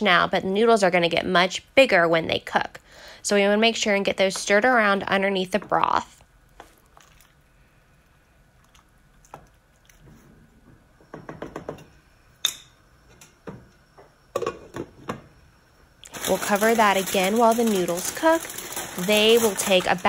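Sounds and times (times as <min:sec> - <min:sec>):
wooden spoon stirring in pot: 0:05.5 - 0:07.4.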